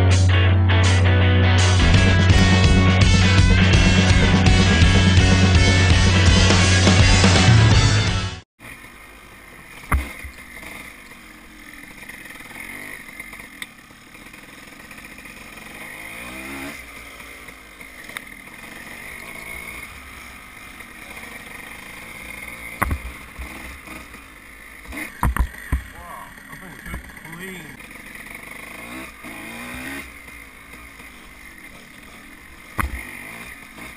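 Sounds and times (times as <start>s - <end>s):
dirt bike engine revving: 1.6s - 33.9s
sharp thump: 9.9s - 10.4s, 22.7s - 23.5s, 32.8s - 33.0s.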